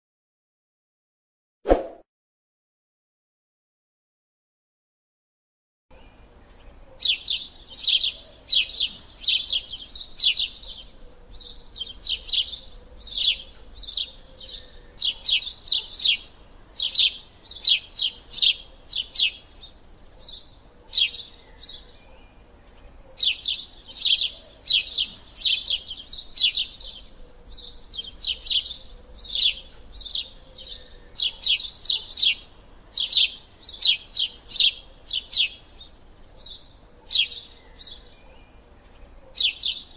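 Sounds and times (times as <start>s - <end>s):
small birds chirping: 5.9s - 39.9s.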